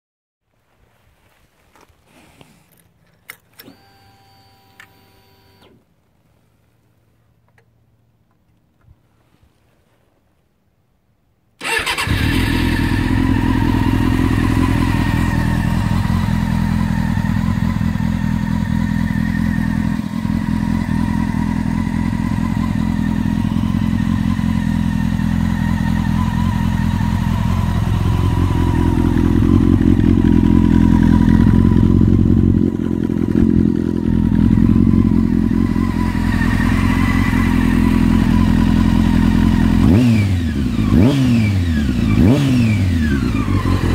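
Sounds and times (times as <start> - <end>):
motorcycle engine idling: 11.6 - 43.9.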